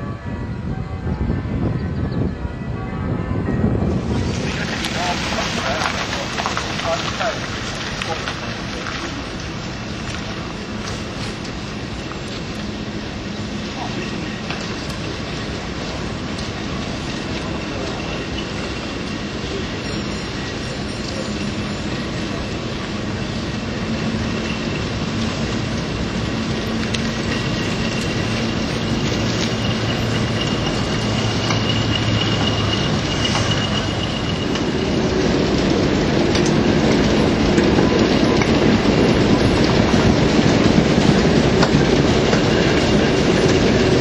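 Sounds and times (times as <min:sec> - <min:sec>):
diesel locomotive engine running: 0:00.0 - 0:44.0
train wheels rolling on rails: 0:03.1 - 0:44.0
high wheel squeal: 0:04.0 - 0:44.0.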